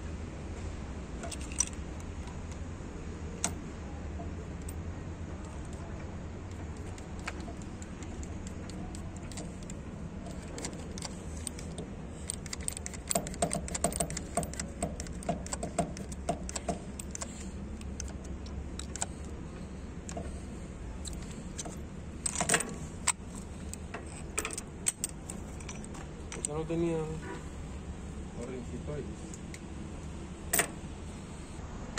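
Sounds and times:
steady low hum: 0.0s - 31.9s
metallic clinks and jangles: 1.2s - 1.8s, 21.0s - 26.5s.

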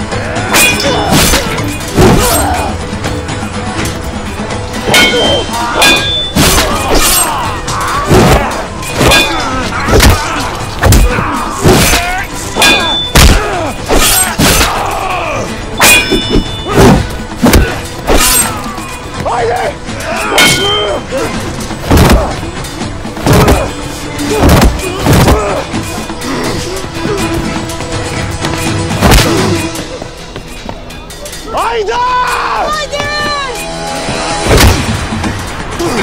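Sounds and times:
men shouting and grunting: 0.0s - 3.3s, 4.6s - 30.2s, 31.0s - 34.5s, 35.3s - 36.0s
dramatic music: 0.0s - 36.0s
clanging sword blades: 0.5s - 2.7s, 4.9s - 7.5s, 8.1s - 14.9s, 15.8s - 18.9s, 20.2s - 21.0s.

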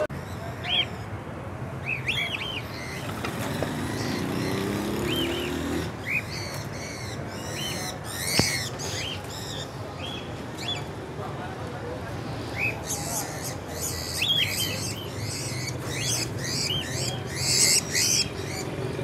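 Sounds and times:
street background noise: 0.0s - 19.0s
small parrots chirping: 12.6s - 18.7s.

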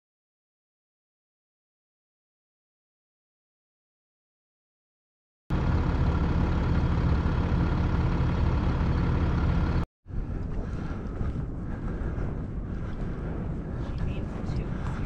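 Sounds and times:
outdoor ambience: 5.5s - 15.0s
steady mechanical drone: 5.5s - 15.0s.

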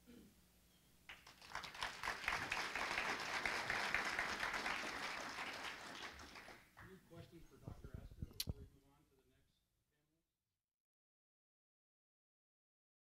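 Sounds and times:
audience applauding: 1.1s - 7.0s.

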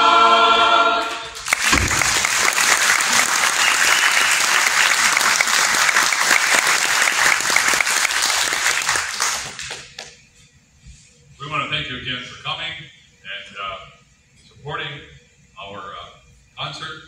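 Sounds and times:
audience applauding: 1.0s - 10.1s.

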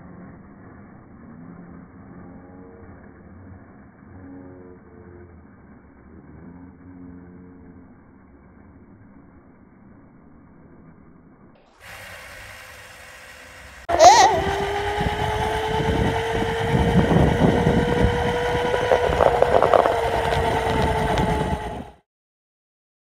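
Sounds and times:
electric scooter motor whining: 11.8s - 22.0s
small wheels rattling on asphalt: 11.8s - 22.0s.

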